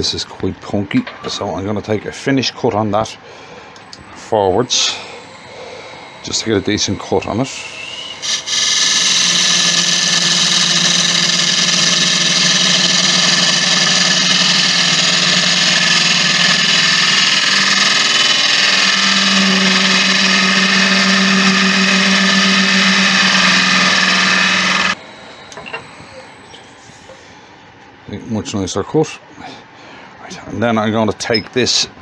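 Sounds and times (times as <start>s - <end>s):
wood lathe hum: 4.7s - 25.0s
gouge cutting wood hiss: 7.7s - 25.0s.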